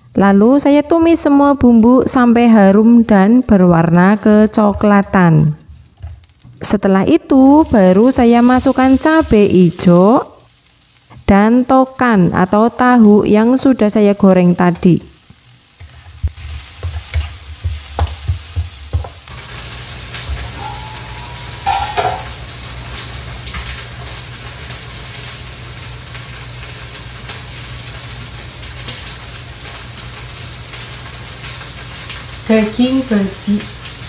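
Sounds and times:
food sizzling in a wok: 0:00.0 - 0:34.0
spatula knocking against pan: 0:16.2 - 0:19.2, 0:20.6 - 0:22.3.

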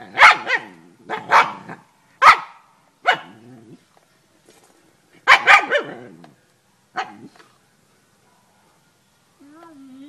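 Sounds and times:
dog barking: 0:00.2 - 0:03.3, 0:05.2 - 0:06.0.

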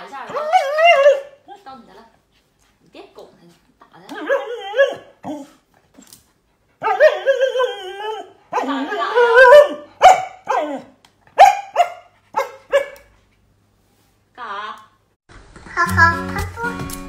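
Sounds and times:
dog barking: 0:09.4 - 0:13.1.

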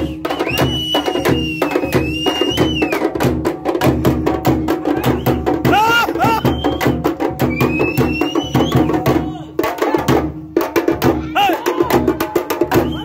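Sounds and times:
drum ensemble beating: 0:00.0 - 0:13.0
shrill held pitch: 0:04.9 - 0:06.9.

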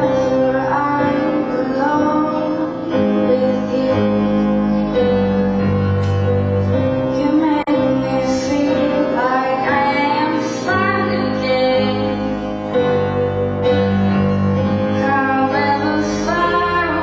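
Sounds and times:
woman singing a ballad: 0:00.0 - 0:04.8, 0:07.1 - 0:13.0, 0:15.0 - 0:17.0
piano accompaniment: 0:00.0 - 0:17.0.

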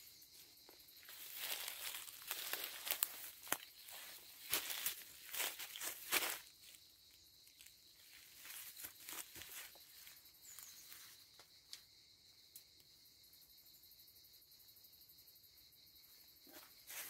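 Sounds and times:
high pulsing insect chirp: 0:00.0 - 0:17.0
footsteps on dry leaves: 0:01.0 - 0:06.8, 0:08.0 - 0:10.1.

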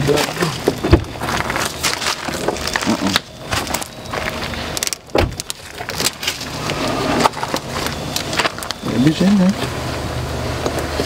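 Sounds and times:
knocks and clicks of car parts: 0:00.6 - 0:01.2, 0:04.8 - 0:06.2.

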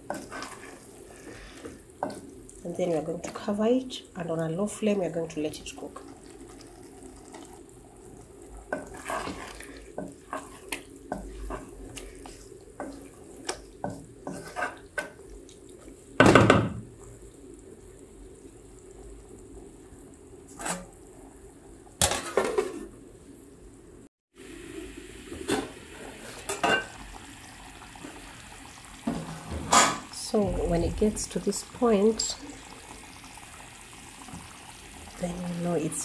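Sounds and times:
wooden spoon scraping in metal pot: 0:00.0 - 0:03.4, 0:08.7 - 0:15.0, 0:20.5 - 0:20.9.

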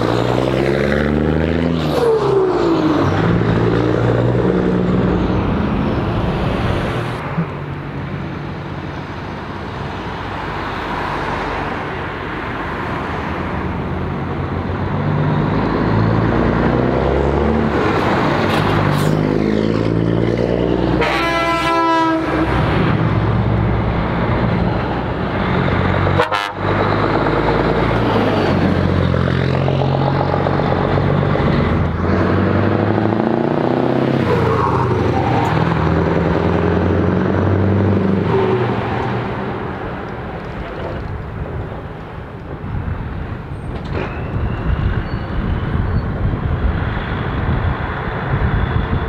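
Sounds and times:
diesel trucks driving past: 0:00.0 - 0:49.0
truck air horn: 0:20.9 - 0:22.6, 0:26.1 - 0:26.7.

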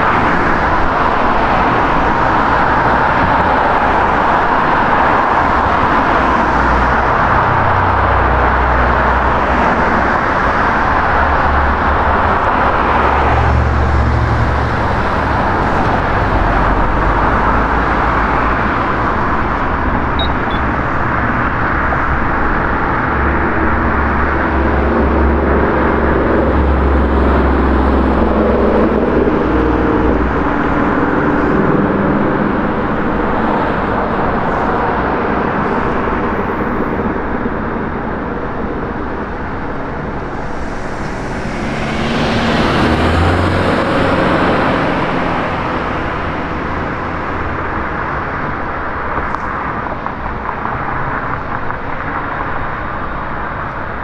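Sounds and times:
road traffic: 0:00.0 - 0:54.0
vehicle passing loudly: 0:39.2 - 0:47.9.

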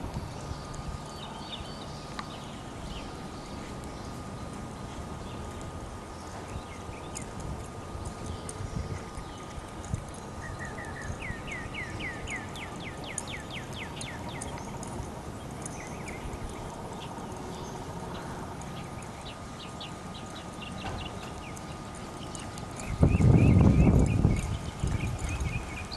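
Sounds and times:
horse hoofbeats on grass: 0:00.0 - 0:25.9
bird chirping: 0:00.3 - 0:25.9.

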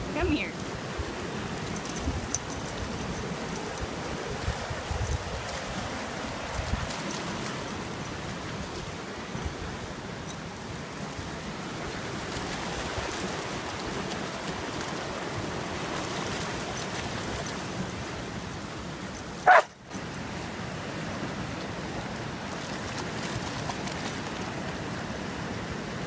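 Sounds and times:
fast-flowing creek rushing: 0:00.0 - 0:26.0
puppy yipping: 0:19.4 - 0:19.7.

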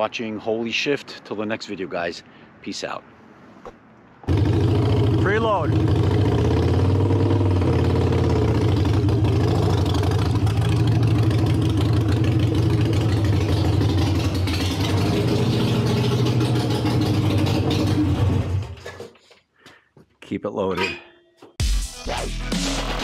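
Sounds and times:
motorcycle engine at low revs: 0:04.2 - 0:18.9.

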